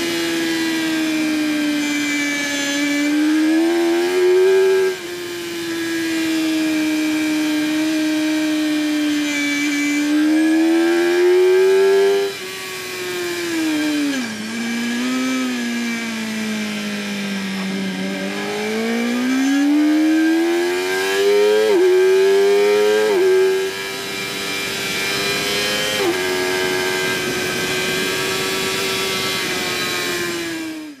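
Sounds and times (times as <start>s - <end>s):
motorcycle engine at high revs: 0.0s - 31.0s
quick gear upshifts: 10.4s - 31.0s.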